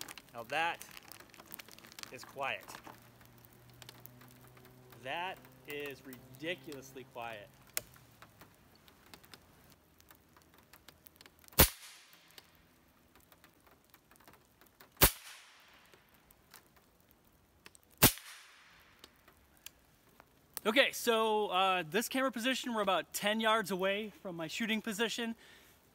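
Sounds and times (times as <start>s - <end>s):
raindrops ticking on table: 0.0s - 20.7s
suppressed air rifle shots: 11.6s - 12.1s, 15.0s - 15.6s, 18.0s - 18.7s.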